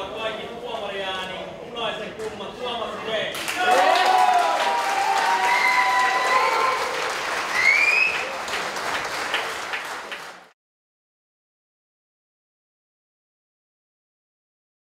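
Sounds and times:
crowd applauding: 3.4 - 10.6.

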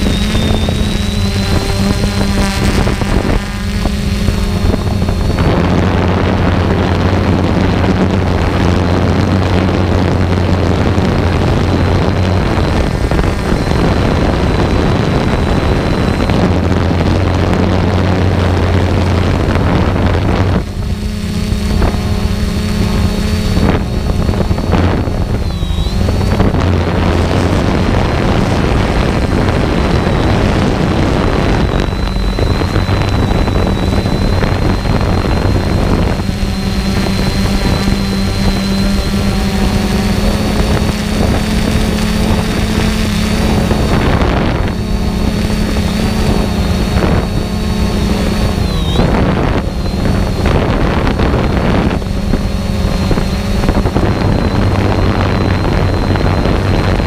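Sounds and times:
engine running: 0.0 - 57.0
thin high whine: 0.0 - 57.0.

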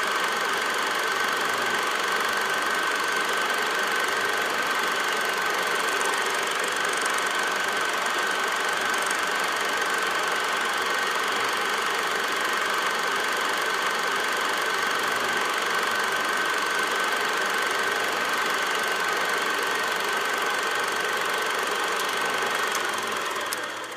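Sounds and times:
film projector running: 0.0 - 23.9.

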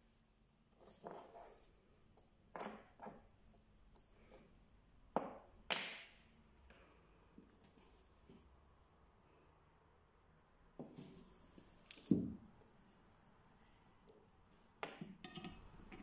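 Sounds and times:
metal rods clinking on table: 14.8 - 16.0.

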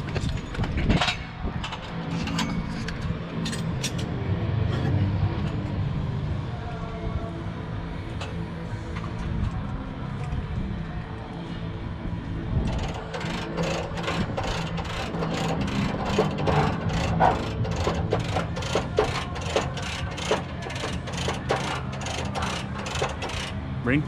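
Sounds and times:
steady low hum: 0.0 - 24.0
ratchet wrench clicking: 12.7 - 23.6.

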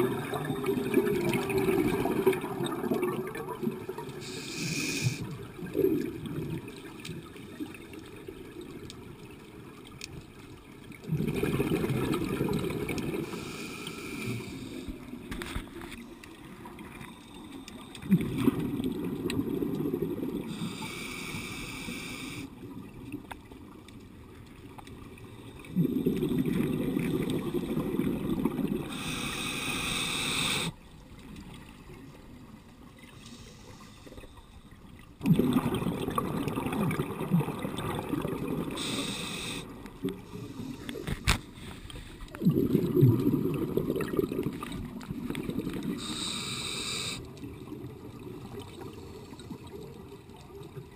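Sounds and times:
exhaled bubbles rushing underwater: 0.0 - 9.9, 10.6 - 13.6, 17.9 - 20.9, 24.6 - 30.2, 34.9 - 40.8, 42.3 - 46.5
regulator inhalation hiss: 4.2 - 5.3, 13.2 - 14.9, 20.5 - 22.5, 28.9 - 30.8, 33.2 - 34.2, 38.8 - 41.0, 46.0 - 47.3.

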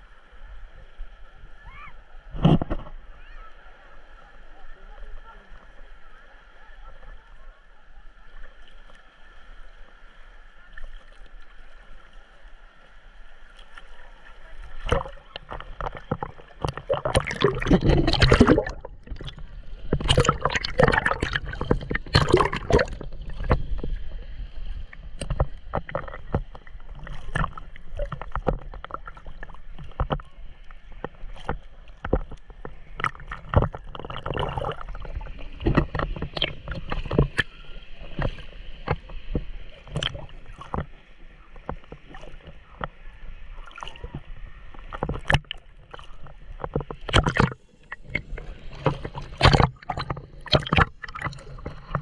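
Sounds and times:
seawater sloshing and splashing: 13.5 - 52.0.

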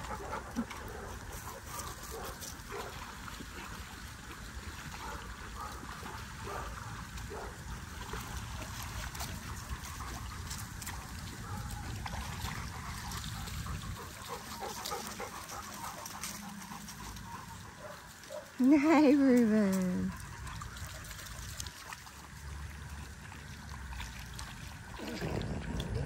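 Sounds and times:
dogs splashing in water: 0.0 - 26.0
water trickling: 0.0 - 26.0
steady low rumble: 24.3 - 26.0.

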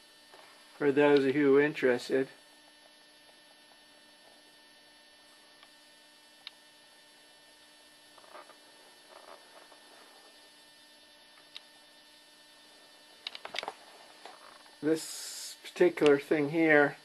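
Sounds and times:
electrical mains hum: 0.0 - 17.0
high whine: 0.0 - 17.0
soft handling noises: 8.2 - 10.4.

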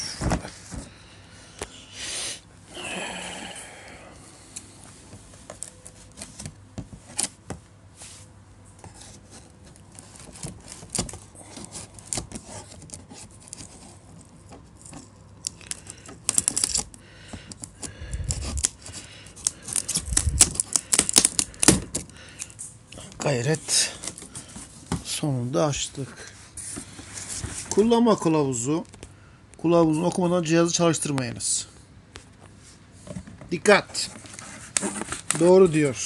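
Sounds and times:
packaging crinkling and tearing: 9.7 - 17.0, 17.6 - 22.1.

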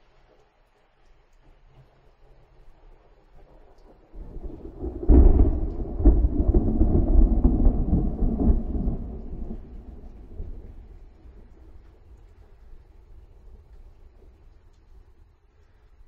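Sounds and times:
thunder rumbling and cracking: 3.8 - 14.4.

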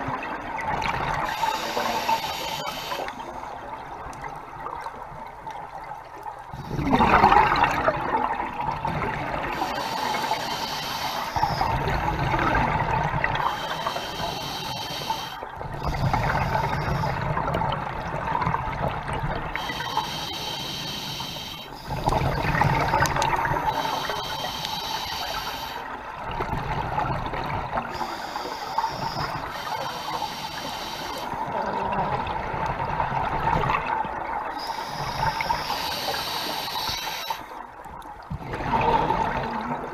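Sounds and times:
exhaled bubbles gurgling: 0.0 - 39.9
regulator hissing inhale: 1.2 - 3.4, 9.6 - 11.8, 13.4 - 15.4, 19.6 - 22.1, 23.6 - 25.9, 27.9 - 31.4, 34.6 - 37.6.

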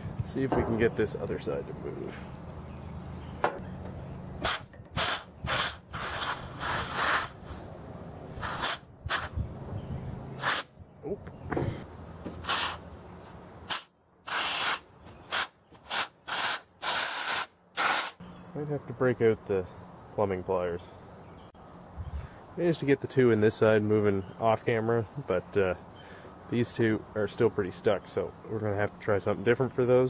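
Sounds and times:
compressed air blow gun hissing: 4.4 - 7.7, 8.3 - 9.4, 10.4 - 10.7, 12.4 - 12.9, 13.6 - 18.2.

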